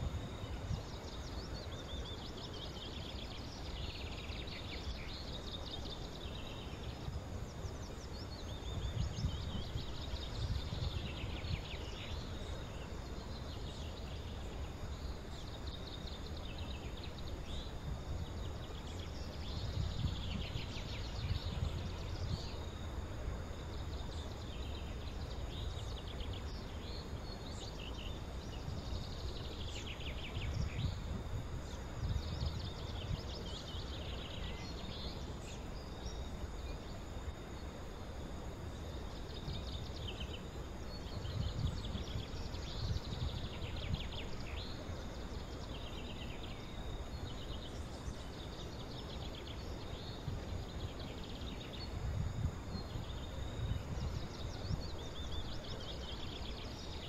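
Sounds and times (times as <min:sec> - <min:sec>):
high insect drone: 0:00.0 - 0:57.0
songbirds chirping and trilling: 0:00.0 - 0:57.0.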